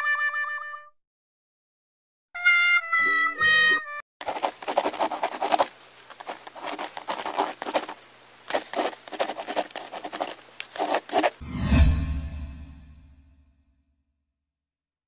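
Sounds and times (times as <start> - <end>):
cat claws scratching bark: 4.2 - 11.4.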